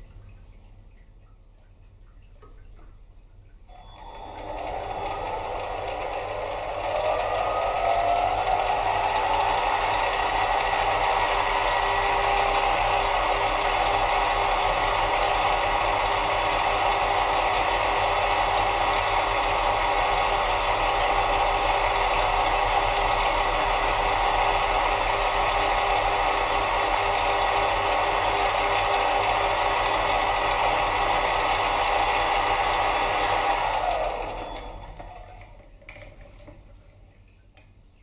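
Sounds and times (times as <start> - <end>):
lathe motor whine: 3.7 - 35.5
drill cutting metal rattle: 4.0 - 21.8.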